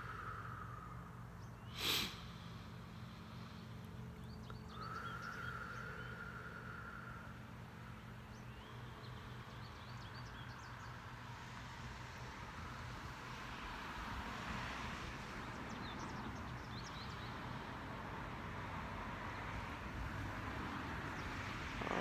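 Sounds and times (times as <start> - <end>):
slow deep breaths: 0.0 - 9.8
faint bird chirps: 0.0 - 11.0.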